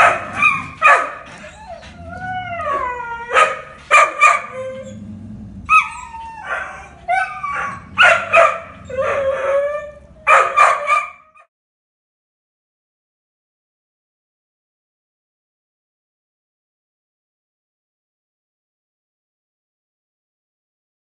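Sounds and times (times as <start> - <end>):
dogs barking: 0.0 - 1.5, 3.2 - 5.0, 5.6 - 11.5
dogs howling: 0.0 - 11.5.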